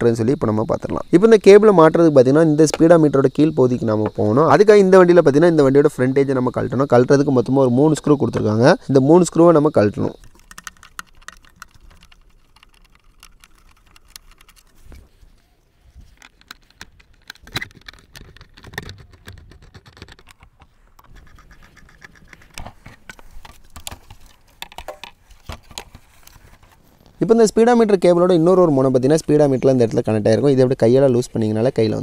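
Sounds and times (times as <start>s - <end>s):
plastic panel rattling: 10.2s - 14.8s, 16.2s - 26.0s
screwdriver clicking on screws: 10.2s - 14.8s.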